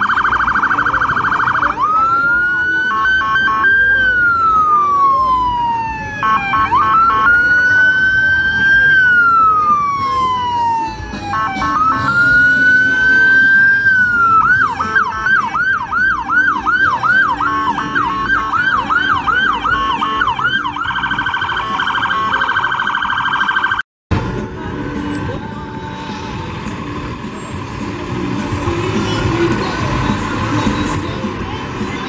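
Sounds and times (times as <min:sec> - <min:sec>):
police siren: 0:00.0 - 0:23.8.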